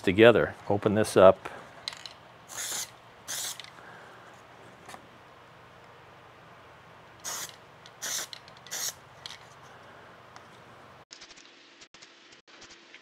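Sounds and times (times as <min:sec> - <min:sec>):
aerosol can hissing: 0:02.5 - 0:03.7, 0:07.2 - 0:09.0.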